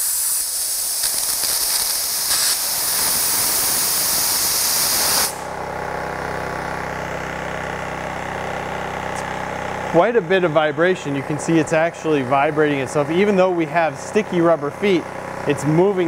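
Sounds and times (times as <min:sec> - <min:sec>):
compressed air hissing: 0:00.0 - 0:05.6
compressor motor humming: 0:00.0 - 0:16.0.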